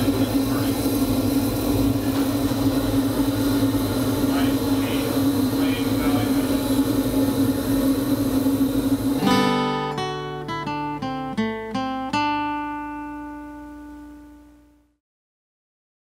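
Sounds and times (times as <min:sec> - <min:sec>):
oil burner humming: 0:00.0 - 0:15.0
acoustic guitar strummed chords: 0:09.0 - 0:15.0.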